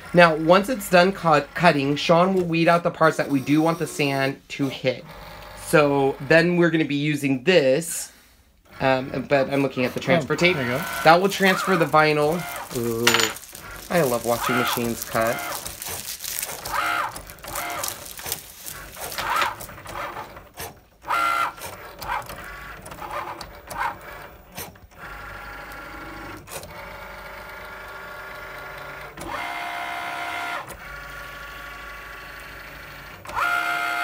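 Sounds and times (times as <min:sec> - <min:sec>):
cutting machine motors whining: 0:08.8 - 0:12.9.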